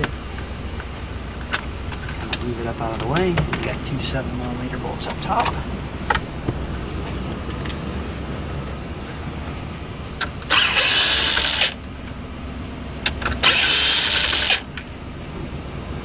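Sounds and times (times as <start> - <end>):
power driver spinning out bolts: 10.4 - 11.8, 13.1 - 14.7.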